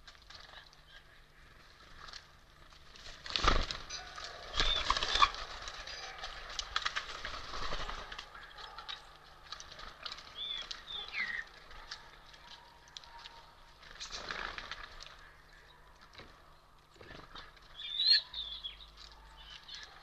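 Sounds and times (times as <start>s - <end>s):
birds pecking at feeder: 0.0s - 20.0s
high bird chirps: 17.7s - 19.9s.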